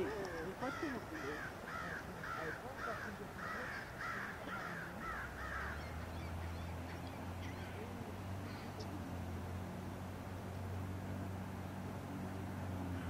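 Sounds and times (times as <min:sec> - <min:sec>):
steady low hum: 0:00.0 - 0:13.0
crow cawing: 0:00.6 - 0:06.4.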